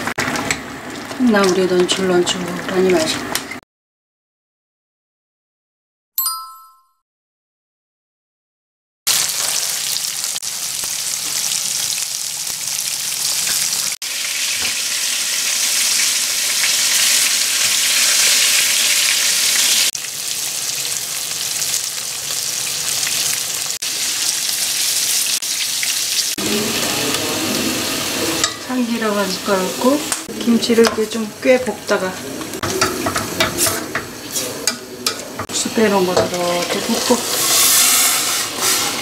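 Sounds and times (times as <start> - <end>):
fish sizzling in oil: 9.1 - 39.0.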